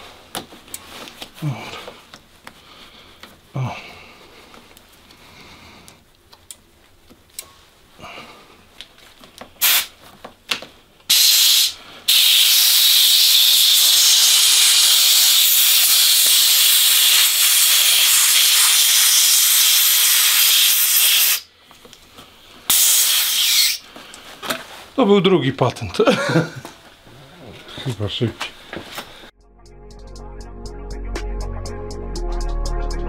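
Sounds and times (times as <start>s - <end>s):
compressed air hissing: 9.6s - 10.0s, 11.1s - 21.5s, 22.7s - 23.9s.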